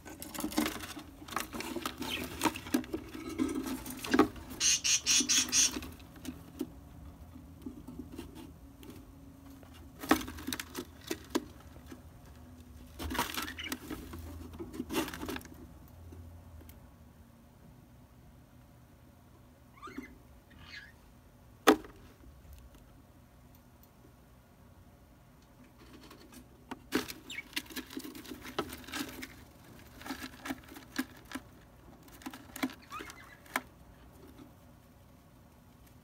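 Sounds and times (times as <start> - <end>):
high rasping bird pulses: 4.6 - 5.8.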